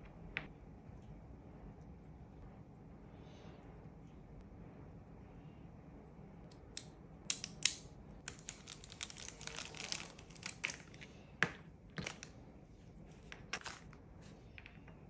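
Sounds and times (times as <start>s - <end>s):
plastic bag crinkling: 8.5s - 11.0s.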